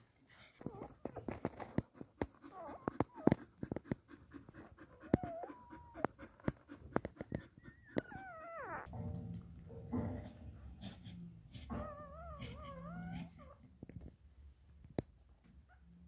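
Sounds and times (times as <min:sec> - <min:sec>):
puppies whining: 0:00.6 - 0:08.9, 0:11.5 - 0:13.6.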